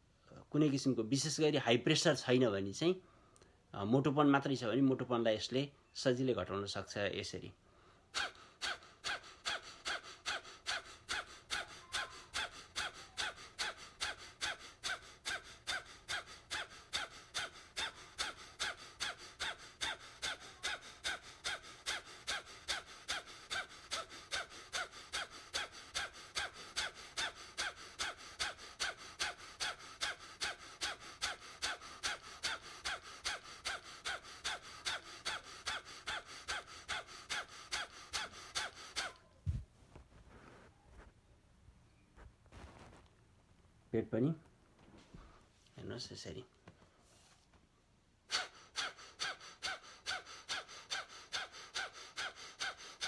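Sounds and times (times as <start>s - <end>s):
forceful nasal exhalations: 8.1s - 40.8s, 48.3s - 53.0s.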